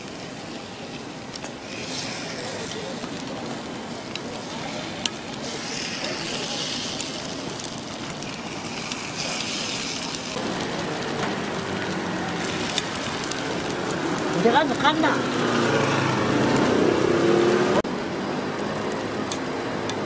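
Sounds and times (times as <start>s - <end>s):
batter sizzling in a hot mold: 0.0s - 16.8s
steady street noise: 0.0s - 20.0s.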